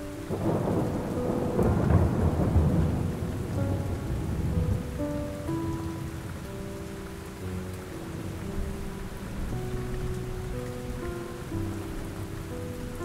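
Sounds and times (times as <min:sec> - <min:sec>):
rolling thunder: 0:00.0 - 0:06.8
ambient music of long held notes: 0:00.0 - 0:13.0
steady rain: 0:00.0 - 0:13.0.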